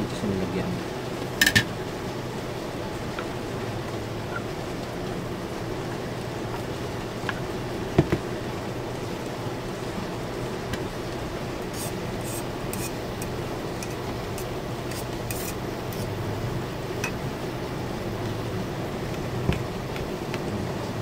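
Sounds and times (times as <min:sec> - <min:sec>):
steady low hum: 0:00.0 - 0:21.0
knife scraping inside a metal cup: 0:11.7 - 0:16.1.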